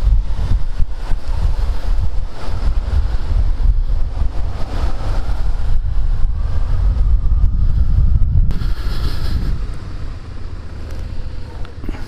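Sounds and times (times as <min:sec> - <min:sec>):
wind buffeting microphone: 0:00.0 - 0:12.0
high hiss: 0:08.5 - 0:12.0.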